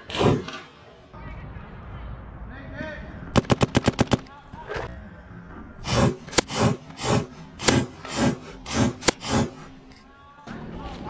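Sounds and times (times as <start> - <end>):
paintball marker shots: 3.4 - 4.3, 5.9 - 9.6.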